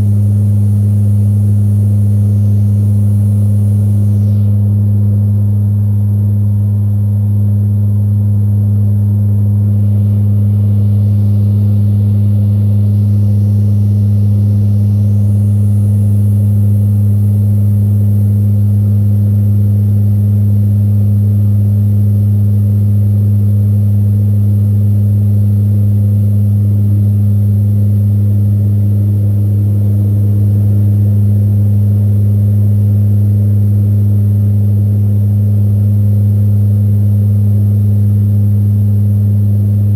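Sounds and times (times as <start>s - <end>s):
turboprop engines droning: 0.0s - 18.4s.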